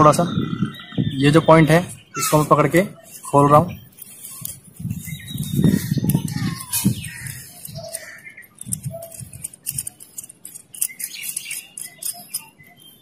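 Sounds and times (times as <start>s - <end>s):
birds chirping: 0.0s - 13.0s
small metal parts clicking: 3.1s - 13.0s.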